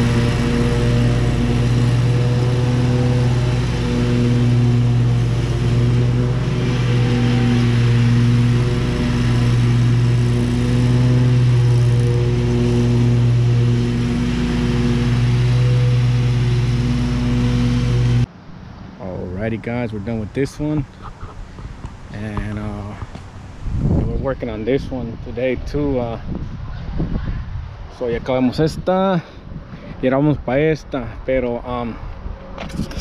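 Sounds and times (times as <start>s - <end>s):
riding mower engine drone: 0.0s - 33.0s.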